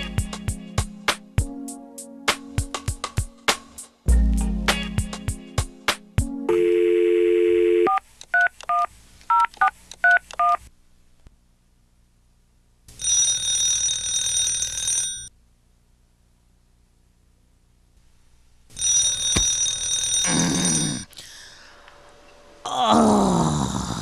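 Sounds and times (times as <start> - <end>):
telephone bell ringing: 6.5 - 8.0, 13.0 - 15.3, 18.8 - 21.1
telephone dial tone: 6.5 - 9.5, 13.0 - 15.3.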